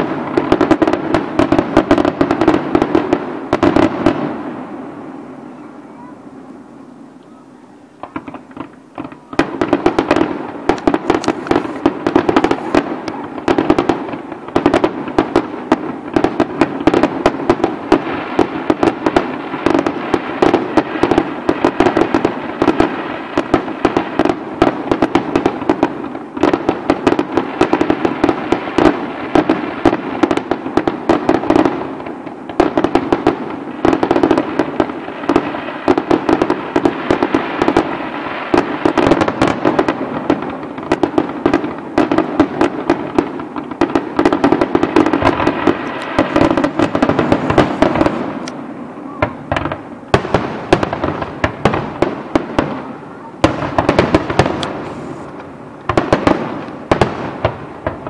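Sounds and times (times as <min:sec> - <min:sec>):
fireworks bangs and crackling: 0:00.0 - 0:58.0
firework pops: 0:08.0 - 0:31.7, 0:38.5 - 0:52.8, 0:53.4 - 0:58.0.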